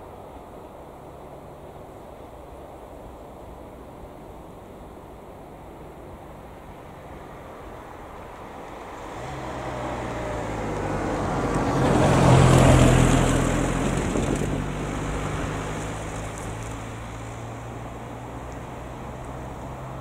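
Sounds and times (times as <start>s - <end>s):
car driving past: 7.2s - 20.0s.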